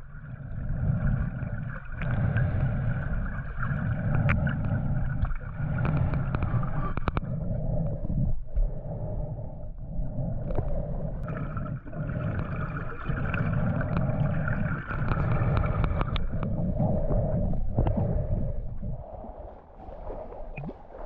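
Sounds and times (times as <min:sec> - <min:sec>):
water gurgling and sloshing: 0:00.0 - 0:21.0
heavy low rumble: 0:13.3 - 0:20.7.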